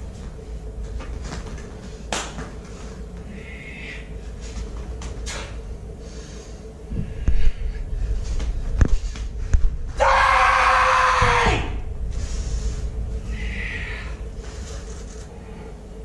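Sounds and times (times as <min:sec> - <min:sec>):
steady hum: 0:00.0 - 0:16.0
sharp slaps from strikes: 0:02.1 - 0:02.5.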